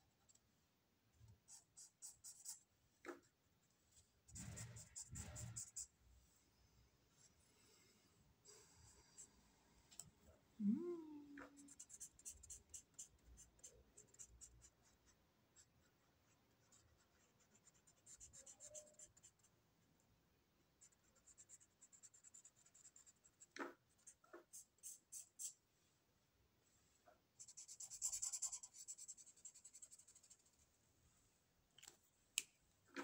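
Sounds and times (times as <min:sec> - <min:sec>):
marker scratching on paper: 0:01.4 - 0:02.6, 0:04.3 - 0:05.9, 0:11.5 - 0:19.5, 0:20.8 - 0:25.6, 0:27.4 - 0:30.6.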